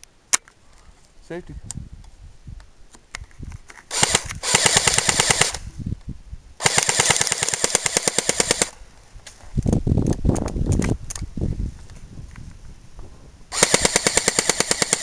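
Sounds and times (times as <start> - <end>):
airsoft gun firing full auto: 3.9 - 5.7, 6.6 - 8.8, 13.5 - 15.0.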